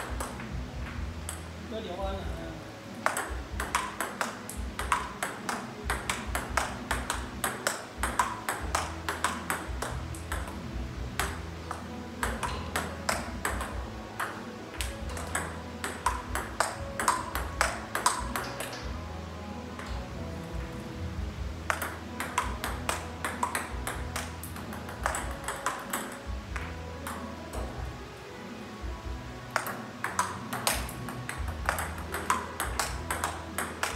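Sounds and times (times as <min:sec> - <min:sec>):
ping pong ball clicking: 0:00.0 - 0:00.5, 0:01.2 - 0:01.5, 0:02.9 - 0:10.6, 0:11.2 - 0:19.0, 0:21.7 - 0:27.8, 0:29.5 - 0:33.9.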